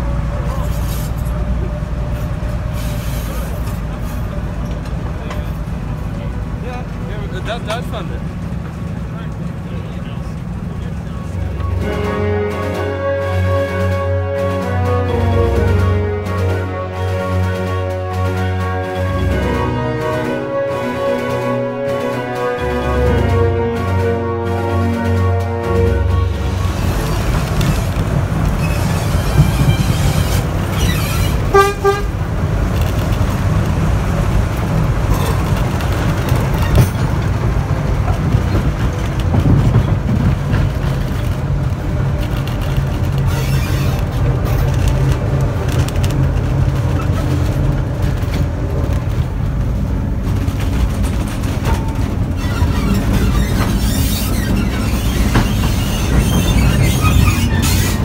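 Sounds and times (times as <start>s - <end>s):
locomotive engine rumble: 0.0s - 58.0s
short horn toot: 28.6s - 32.1s.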